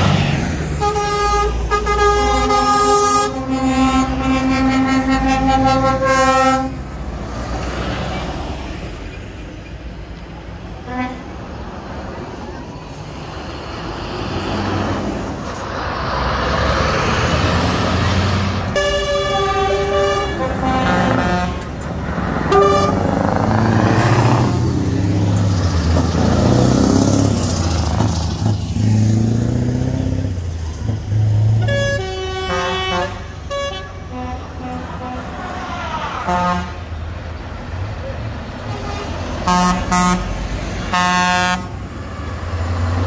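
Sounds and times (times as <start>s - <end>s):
heavy truck engine passing: 0.0s - 43.0s
truck air horn blasts: 0.8s - 6.9s, 10.8s - 11.4s, 18.7s - 21.8s, 22.4s - 23.2s, 31.6s - 36.9s, 38.6s - 42.2s.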